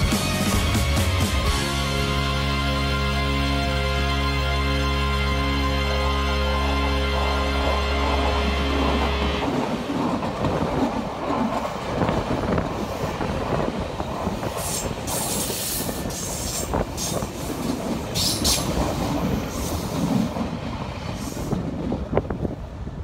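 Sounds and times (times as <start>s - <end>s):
train wheels rumbling and clacking: 7.1s - 23.0s.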